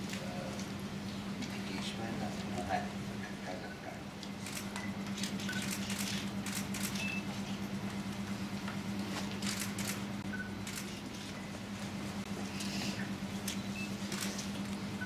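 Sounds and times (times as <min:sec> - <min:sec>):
steady low hum: 0:00.0 - 0:15.0
camera shutters clicking: 0:04.4 - 0:07.1, 0:09.4 - 0:10.0, 0:10.6 - 0:11.0, 0:14.0 - 0:14.5.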